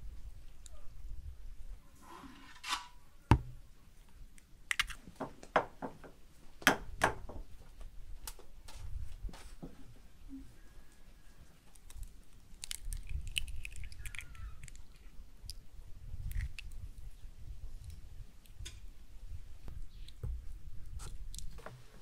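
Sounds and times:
eggs cracking on bowls: 4.3 - 5.6, 11.7 - 15.6, 16.2 - 16.9.

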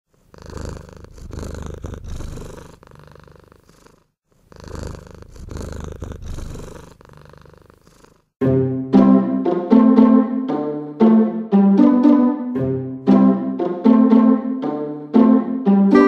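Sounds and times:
cat purring: 0.1 - 8.4.

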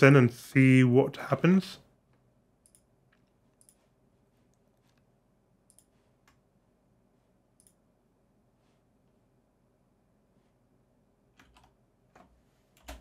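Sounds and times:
computer mouse clicks: 2.6 - 3.9, 4.5 - 6.4, 7.6 - 7.8.

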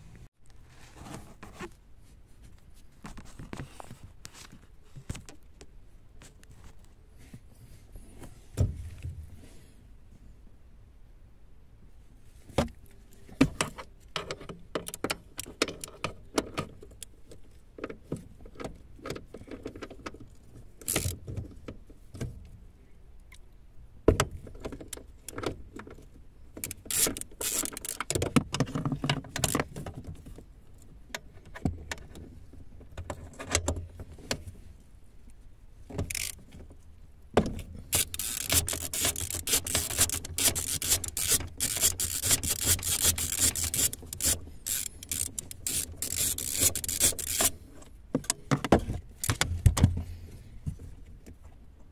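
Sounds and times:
scraping and rubbing with clicks: 12.4 - 22.3, 24.5 - 30.5, 36.0 - 36.8, 37.5 - 50.1.

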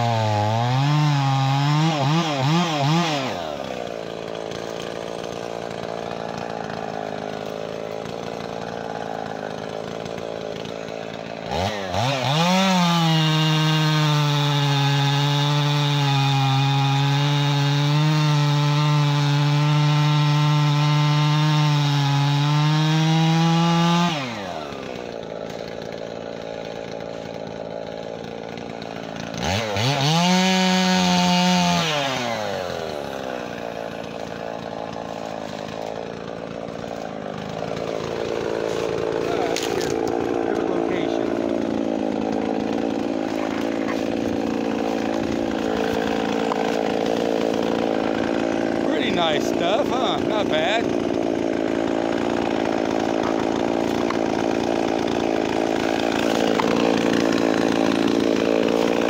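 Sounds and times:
chainsaw cutting a log: 0.0 - 59.0.

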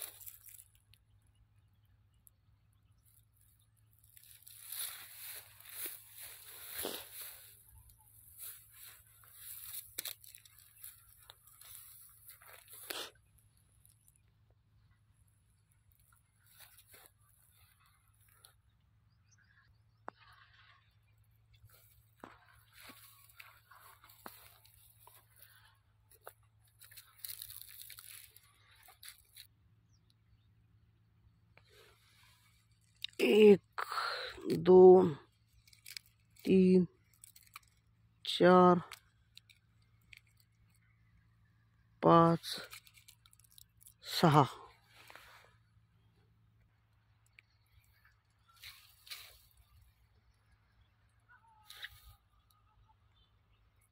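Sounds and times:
dry leaves crackling and rustling: 0.0 - 0.9, 3.9 - 13.2, 16.0 - 17.9, 21.7 - 29.5, 35.3 - 38.0, 42.5 - 44.2, 48.4 - 50.1
rustling of dry plants and leaves: 0.0 - 53.9.

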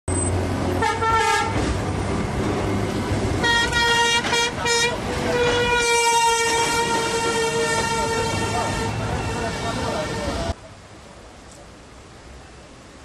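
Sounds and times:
street noise: 0.1 - 13.0
vehicle horn blasts: 3.4 - 10.5.

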